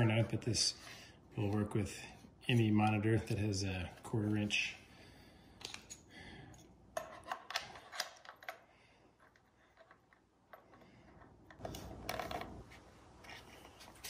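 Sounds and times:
small handling clicks and knocks: 0:05.6 - 0:12.6.

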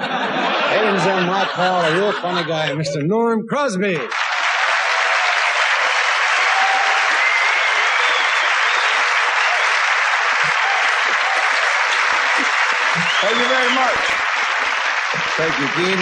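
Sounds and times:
audience applauding: 0:04.1 - 0:16.0.

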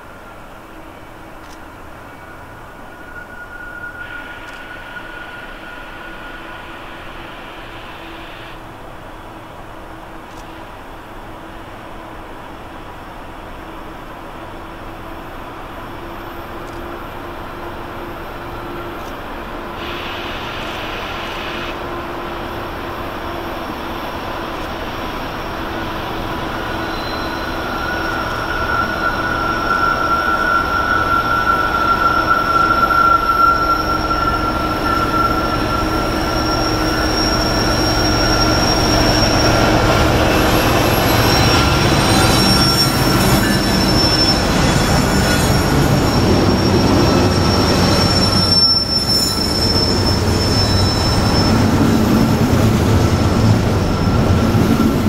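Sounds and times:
diesel locomotives passing: 0:00.0 - 0:55.0
steel wheels squealing: 0:01.9 - 0:08.5, 0:19.7 - 0:55.0.

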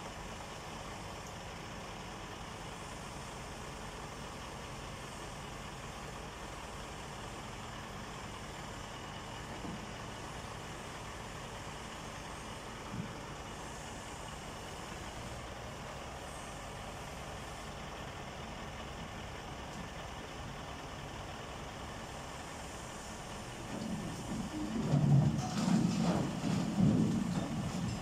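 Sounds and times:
heavy engine idling: 0:00.0 - 0:28.0
knocks: 0:23.8 - 0:28.0.

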